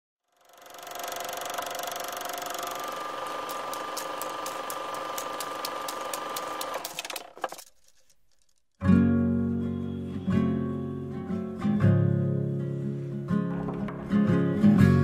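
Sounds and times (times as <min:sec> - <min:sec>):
mechanical whir with whistling: 0:00.3 - 0:06.8
regular clicks: 0:00.5 - 0:08.8.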